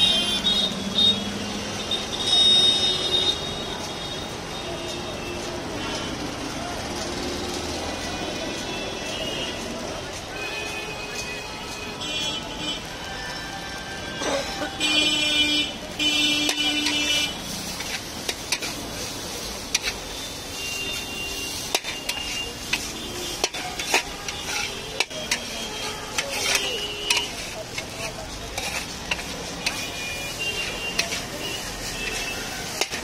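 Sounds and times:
metal spatula scraping wok: 0:14.0 - 0:15.3, 0:16.1 - 0:33.0.

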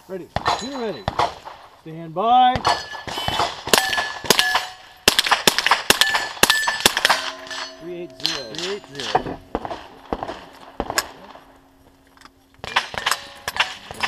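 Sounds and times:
steel target plates clanging: 0:00.4 - 0:01.2, 0:02.6 - 0:05.0, 0:05.9 - 0:11.5, 0:12.1 - 0:14.0
rifle shots: 0:00.4 - 0:01.7, 0:02.5 - 0:11.6, 0:12.6 - 0:14.0.

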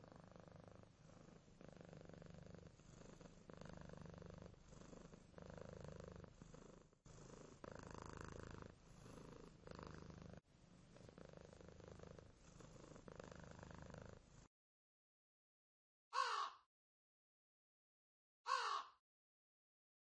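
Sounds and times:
cat purring: 0:00.0 - 0:14.5.

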